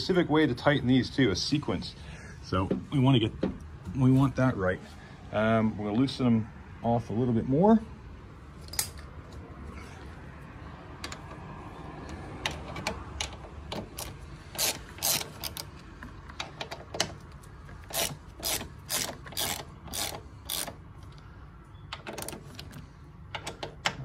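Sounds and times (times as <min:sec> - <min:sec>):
socket ratchet clicking: 0:12.4 - 0:17.2, 0:17.8 - 0:21.2.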